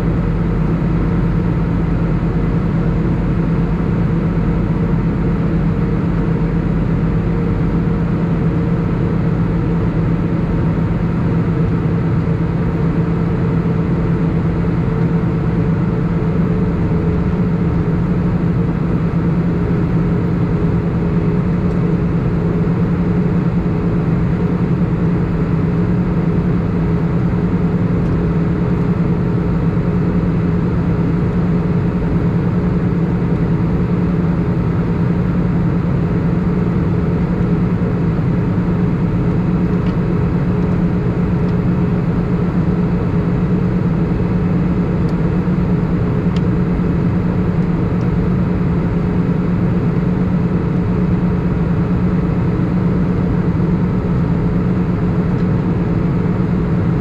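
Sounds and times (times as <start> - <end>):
aircraft cabin jet engine noise: 0.0 - 57.0.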